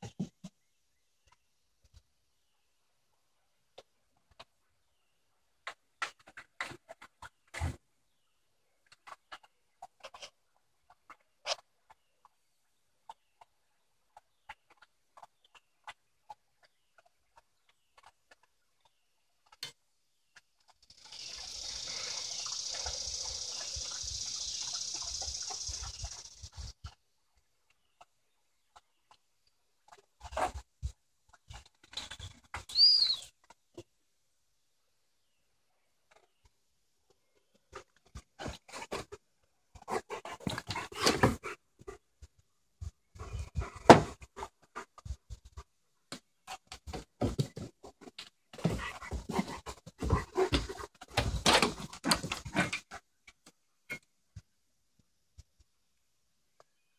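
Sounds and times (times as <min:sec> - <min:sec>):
dogs moving on wooden deck: 0:39.8 - 0:42.0, 0:46.5 - 0:53.0.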